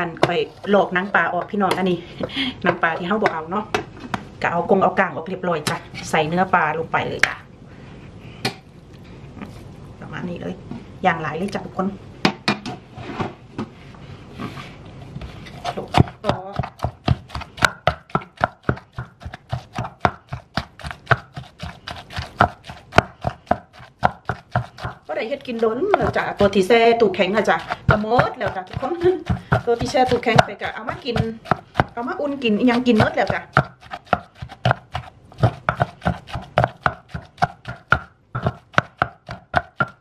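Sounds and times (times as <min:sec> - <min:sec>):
wooden pestle pounding in clay mortar: 0:15.6 - 0:40.0.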